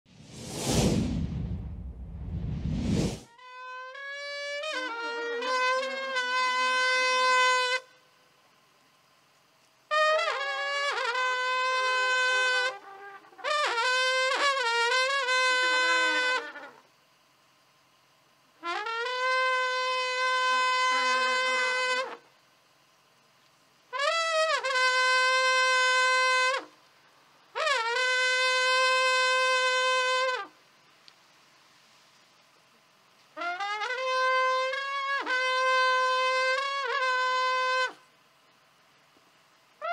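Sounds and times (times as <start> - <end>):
wind instrument held notes: 3.3 - 7.9.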